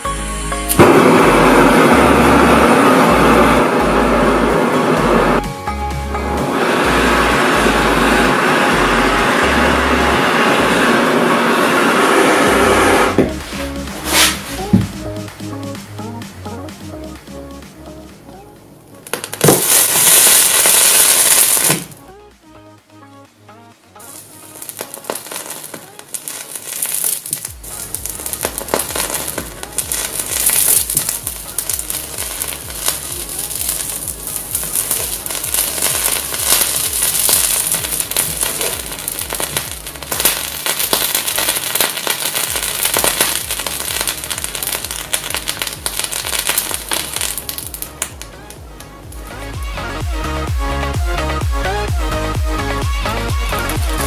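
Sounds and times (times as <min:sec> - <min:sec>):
electronic music with bass beat: 0:00.0 - 0:54.0
hot knife sizzling through plastic: 0:08.2 - 0:15.0, 0:19.1 - 0:22.0, 0:24.0 - 0:48.5.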